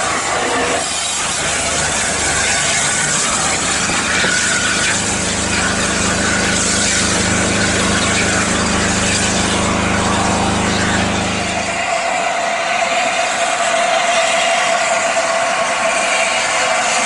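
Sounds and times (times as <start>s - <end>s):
steady low hum: 0.9s - 12.0s
train wind and wheels rushing: 11.7s - 17.0s.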